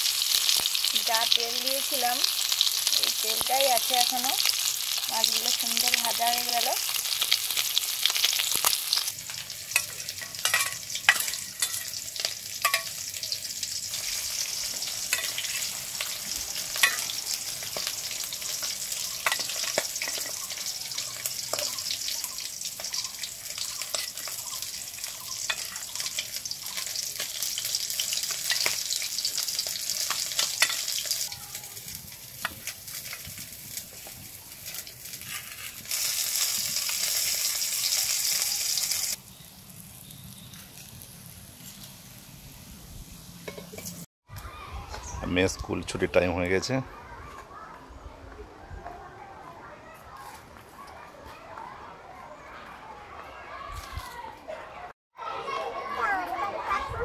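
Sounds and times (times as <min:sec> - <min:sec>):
fish sizzling in oil: 0:00.0 - 0:44.1
metal spatula clicks and scrapes: 0:08.5 - 0:13.0, 0:15.0 - 0:16.2, 0:16.8 - 0:17.9, 0:18.5 - 0:29.0, 0:30.0 - 0:31.2.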